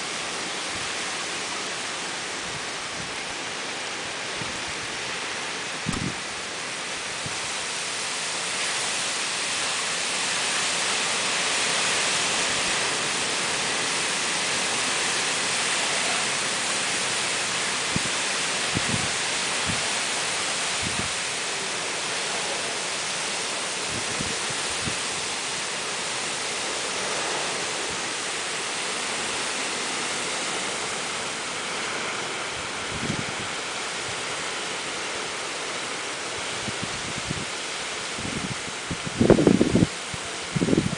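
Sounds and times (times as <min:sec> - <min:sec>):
heavy rain downpour: 0:00.0 - 0:40.9
wind: 0:00.0 - 0:40.9.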